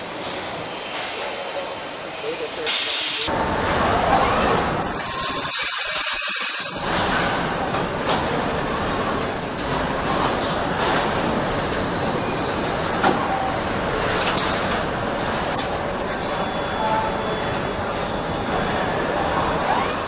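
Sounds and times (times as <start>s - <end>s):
machinery din: 3.3s - 15.9s
loud hiss: 4.8s - 6.9s.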